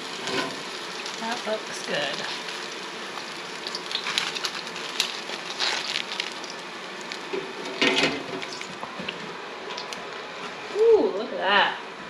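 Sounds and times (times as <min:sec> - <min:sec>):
hot oil hissing and crackling: 0:00.0 - 0:11.7.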